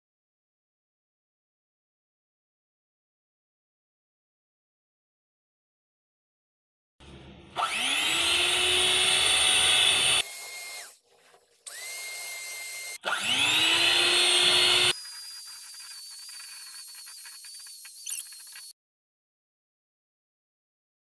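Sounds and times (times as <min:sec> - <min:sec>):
electric hand mixer whining: 0:07.6 - 0:18.7.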